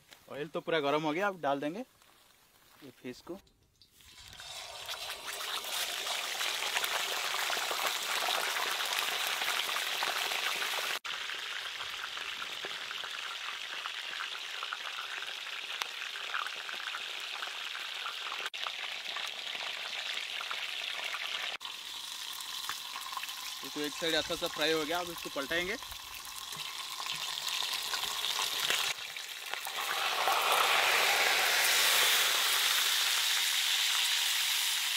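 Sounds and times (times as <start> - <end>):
fish sizzling in hot oil: 3.8 - 34.9.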